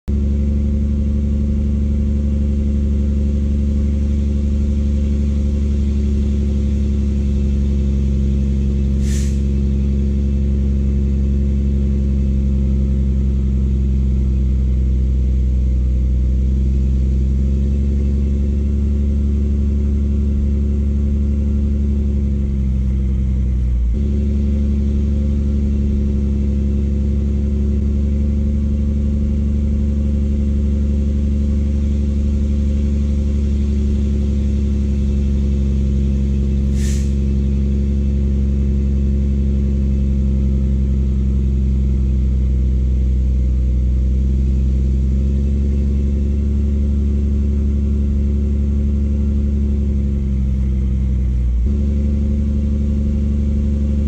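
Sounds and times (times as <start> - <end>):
truck diesel engine running: 0.0 - 54.0
brief hiss: 9.0 - 9.5, 36.7 - 37.2.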